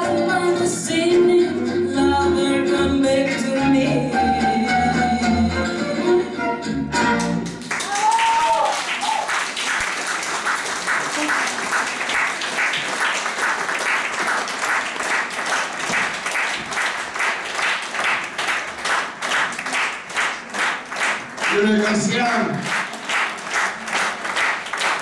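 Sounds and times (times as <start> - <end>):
audience applauding: 7.1 - 25.0.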